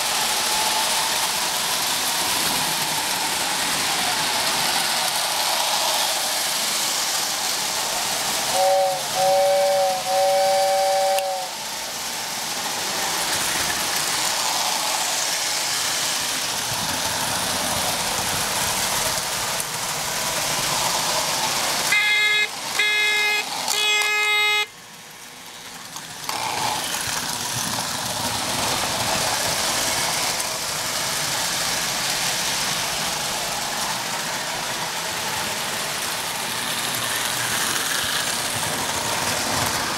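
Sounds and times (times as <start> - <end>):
toy trains running on track: 0.0 - 39.9
buzzy toy train horn: 8.5 - 11.6, 21.9 - 24.8
two-note toy train whistle: 8.5 - 11.6, 21.9 - 24.8.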